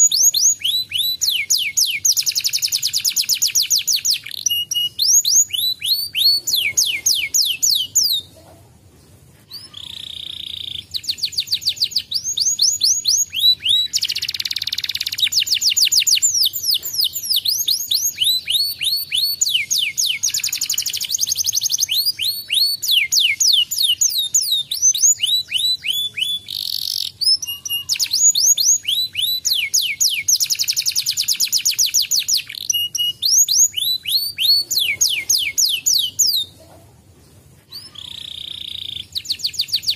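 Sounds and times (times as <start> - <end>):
canary singing: 0.0 - 8.5, 9.5 - 36.7, 37.7 - 39.9.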